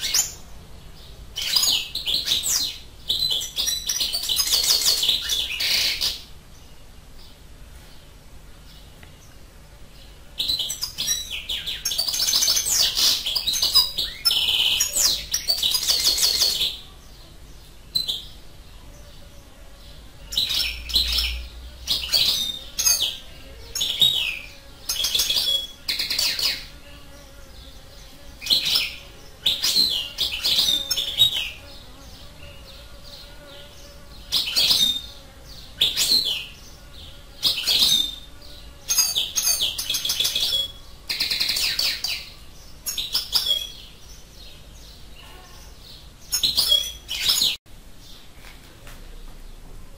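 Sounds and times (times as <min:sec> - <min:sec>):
finch twittering song: 0:01.0 - 0:07.4.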